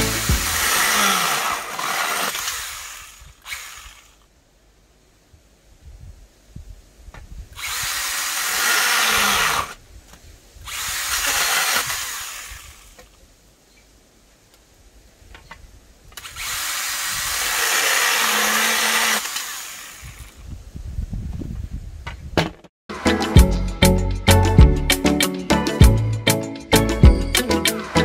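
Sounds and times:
chainsaw cutting wood: 0.0s - 4.3s, 7.6s - 9.8s, 10.6s - 13.2s, 16.2s - 20.4s.

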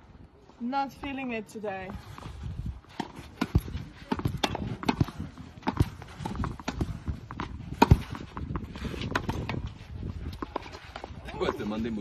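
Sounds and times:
balls hitting court and backstop: 2.2s - 12.0s
tennis balls struck with racket: 2.9s - 11.7s.

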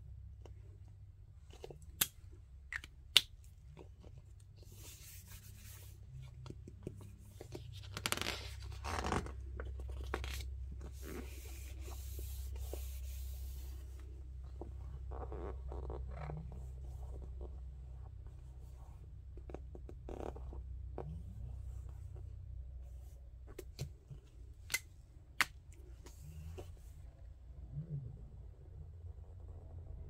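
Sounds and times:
hand rubbing over paper: 4.5s - 6.4s, 10.4s - 19.2s.

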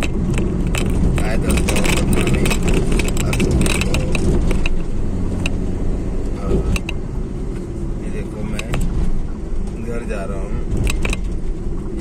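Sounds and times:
light metallic rattling clicks: 0.0s - 5.6s, 10.7s - 11.4s
car road and engine rumble: 0.0s - 12.0s.

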